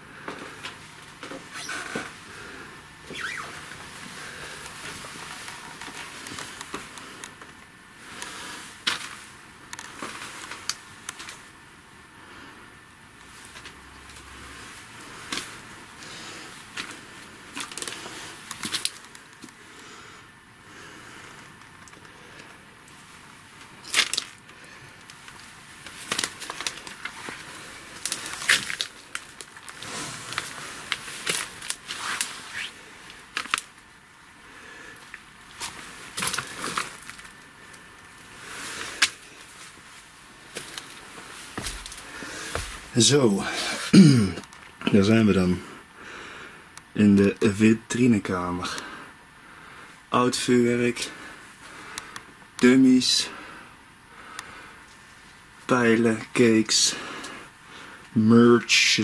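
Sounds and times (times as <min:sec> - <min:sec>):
steady hiss: 0:00.0 - 0:59.0
rustling: 0:21.0 - 0:33.9, 0:34.5 - 0:43.8.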